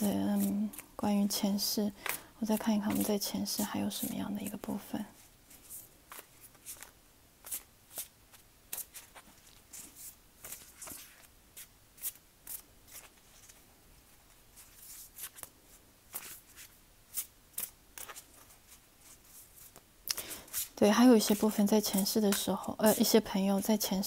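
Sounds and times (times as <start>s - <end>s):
cards rustling and clicking: 2.0s - 3.3s, 5.5s - 11.3s.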